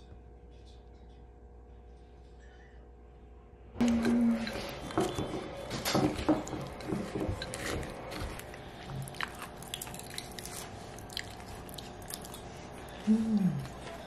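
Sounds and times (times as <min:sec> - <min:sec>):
spoon scraping ceramic bowl: 0:03.8 - 0:05.4, 0:06.4 - 0:07.9
chewing: 0:06.4 - 0:14.0.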